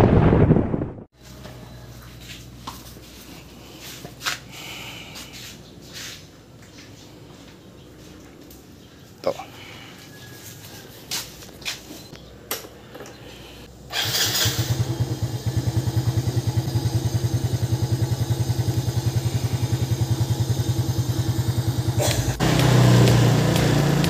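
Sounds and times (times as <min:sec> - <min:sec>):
motorcycle engine starting and idling: 0:13.9 - 0:24.0.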